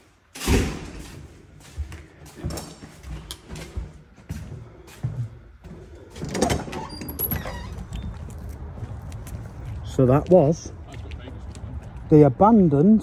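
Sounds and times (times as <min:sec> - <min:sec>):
footsteps: 0:00.0 - 0:12.3
door swinging open: 0:06.2 - 0:08.2.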